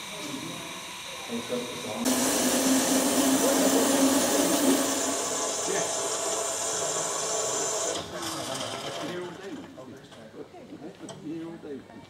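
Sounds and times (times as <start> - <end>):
loud steady hiss: 0.0 - 8.0.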